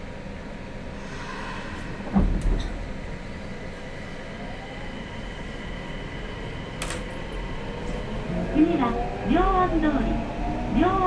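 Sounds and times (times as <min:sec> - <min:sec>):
train running noise: 0:00.0 - 0:11.0
train doors closing thumps: 0:02.1 - 0:02.9.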